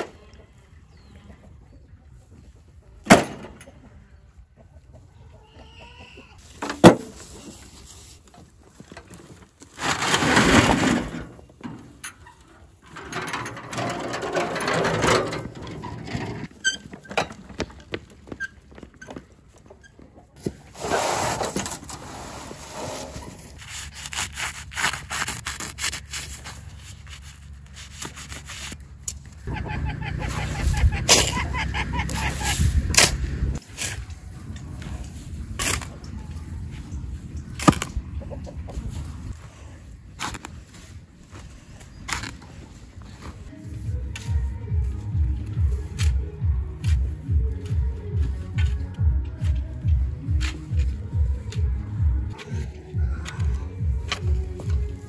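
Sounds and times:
wheelbarrow scraping and rolling: 6.4 - 19.3, 20.4 - 24.1.

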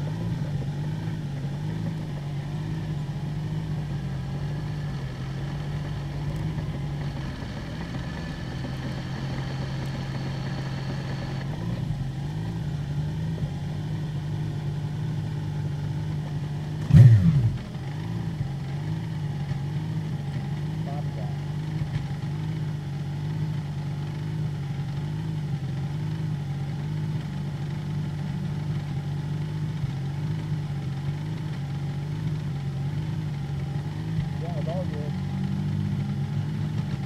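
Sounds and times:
race car engine at low revs: 0.0 - 37.0.

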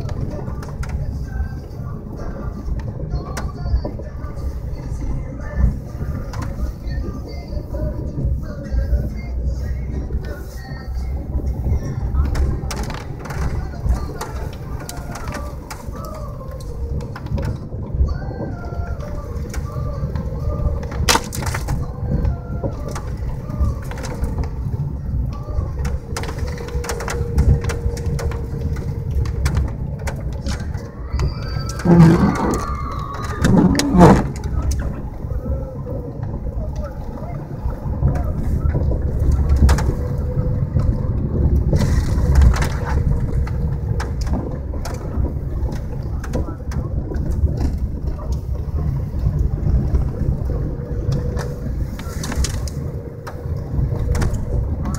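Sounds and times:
car cabin low rumble: 0.0 - 54.9
ice crunching under tyres: 25.4 - 35.5.

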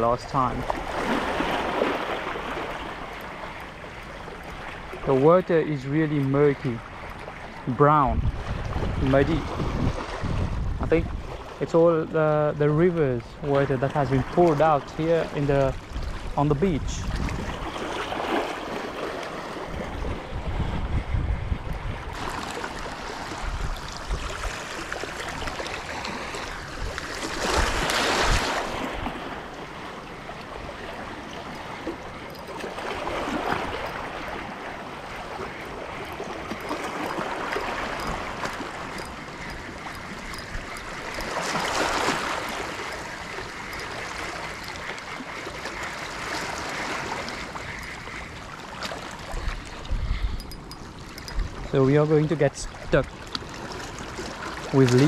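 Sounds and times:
waves lapping against rocks: 0.0 - 55.0
wind rumble on microphone: 8.0 - 11.6, 15.6 - 18.2, 19.4 - 29.5, 49.2 - 51.8.

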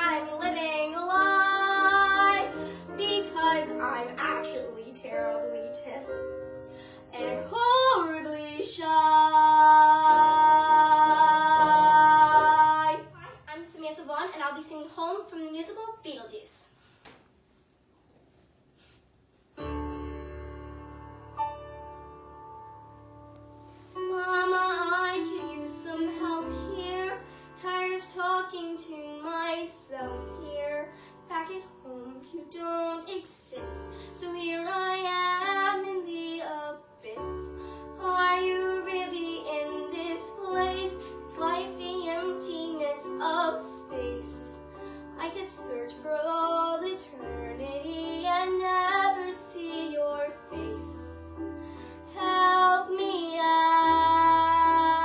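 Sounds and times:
girl singing with vibrato: 0.0 - 4.5, 7.1 - 13.2, 24.0 - 51.4, 52.1 - 55.0
piano accompaniment: 0.0 - 13.5, 19.5 - 55.0.

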